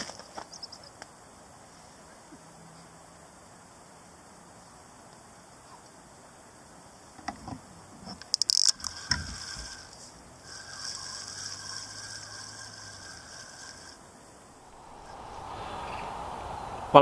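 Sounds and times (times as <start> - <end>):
fishing rod clicks and knocks: 8.2 - 8.8
fishing reel whirring: 8.4 - 14.0.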